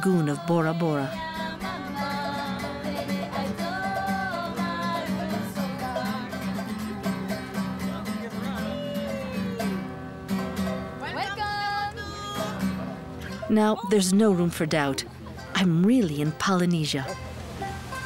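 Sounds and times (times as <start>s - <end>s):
person singing: 0.0s - 7.1s, 7.9s - 9.8s
acoustic guitar strumming: 0.0s - 18.0s
ukulele strumming: 0.0s - 18.0s.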